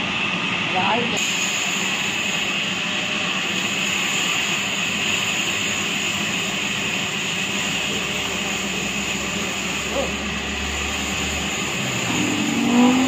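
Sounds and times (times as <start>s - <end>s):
band saw running with high whine: 6.2s - 13.0s.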